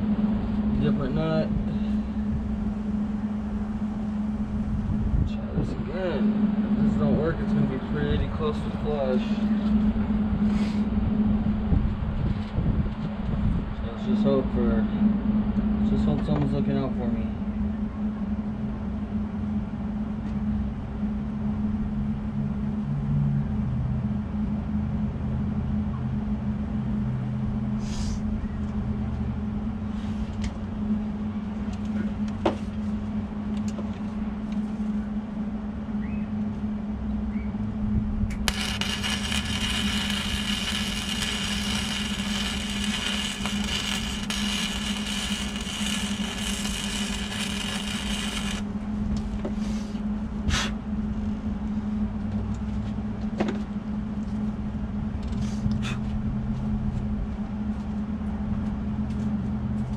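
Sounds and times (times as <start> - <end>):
low hum: 0.0 - 59.9
arc welder crackling and hissing: 38.4 - 48.7.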